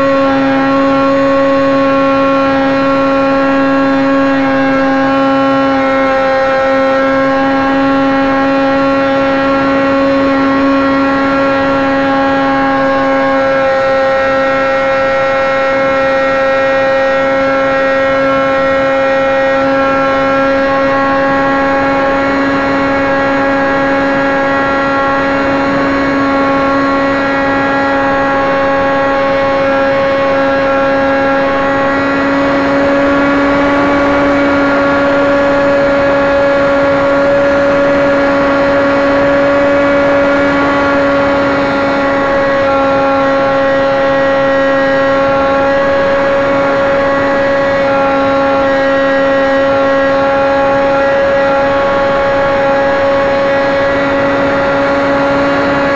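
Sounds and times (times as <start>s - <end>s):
model aircraft engine buzzing: 0.0s - 55.9s.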